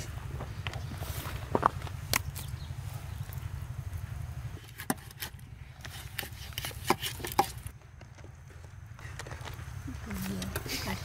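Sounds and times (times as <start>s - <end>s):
steady low rumble: 0.0s - 5.9s.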